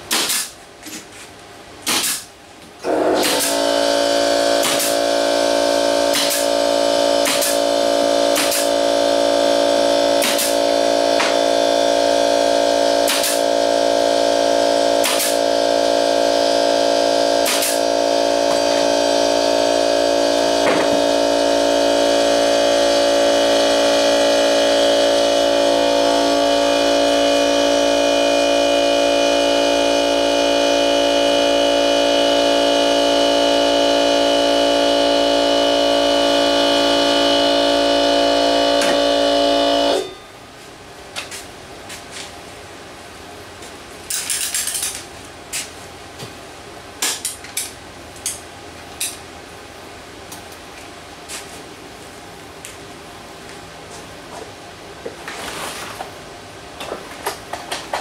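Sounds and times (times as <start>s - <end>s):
nail gun shots: 0.1s - 0.6s, 1.8s - 2.3s, 3.2s - 3.6s, 4.6s - 5.0s, 6.1s - 6.5s, 7.2s - 7.6s, 8.3s - 8.8s, 10.2s - 10.6s, 13.1s - 13.4s, 15.0s - 15.4s, 17.4s - 17.8s
air compressor motor humming: 2.8s - 40.2s.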